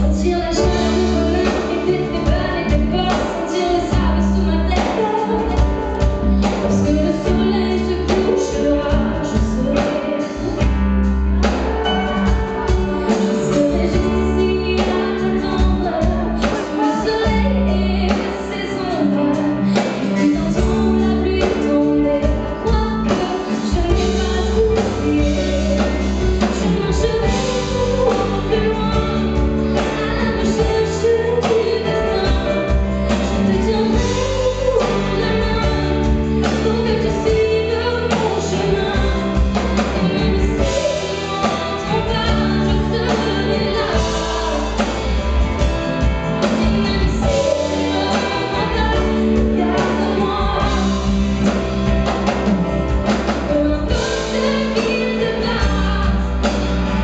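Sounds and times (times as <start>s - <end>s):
electric guitar: 0.0s - 57.0s
keyboard: 0.0s - 57.0s
woman singing into microphone: 0.0s - 57.0s
bass and beat: 20.4s - 57.0s.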